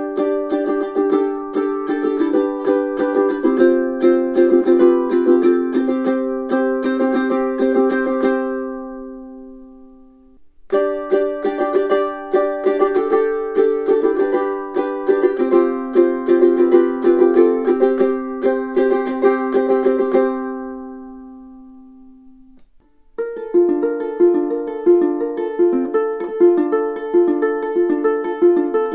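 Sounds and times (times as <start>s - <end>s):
ukulele playing: 0.0s - 28.9s.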